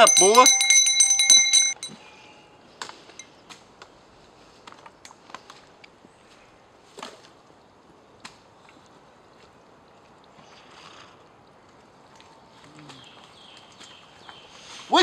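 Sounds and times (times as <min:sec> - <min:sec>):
metal bucket handle clinking: 0:00.0 - 0:01.9.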